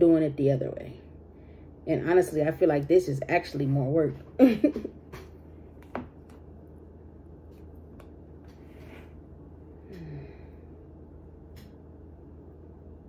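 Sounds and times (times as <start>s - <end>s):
steady low hum: 0.0s - 13.0s
breathy exhale: 9.8s - 10.7s.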